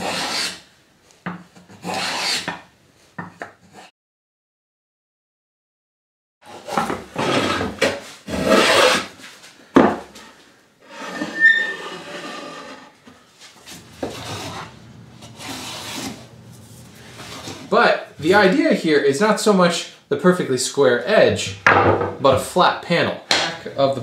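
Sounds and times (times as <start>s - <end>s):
hand plane shaving wood: 0.0s - 0.6s, 1.8s - 2.5s, 6.5s - 9.1s, 13.7s - 16.3s.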